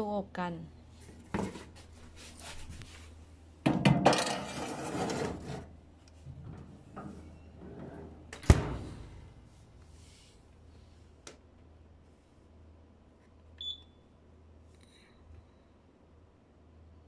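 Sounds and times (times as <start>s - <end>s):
tray scraping rattle: 4.1s - 5.7s.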